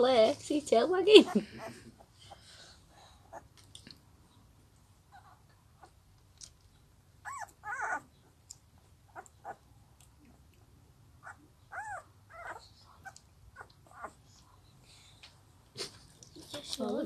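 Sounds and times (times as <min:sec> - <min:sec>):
puppy whimpering: 0:01.2 - 0:02.1, 0:07.2 - 0:08.1, 0:09.1 - 0:09.6, 0:11.2 - 0:14.2.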